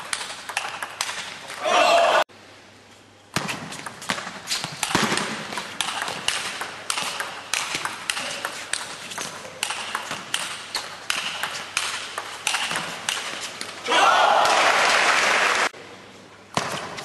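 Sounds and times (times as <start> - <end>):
table tennis ball hits: 3.4 - 13.3.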